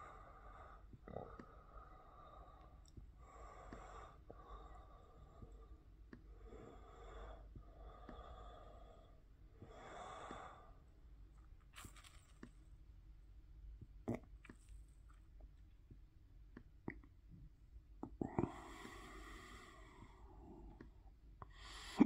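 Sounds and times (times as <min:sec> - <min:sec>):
faint breathing: 0:00.0 - 0:11.0, 0:18.2 - 0:22.0.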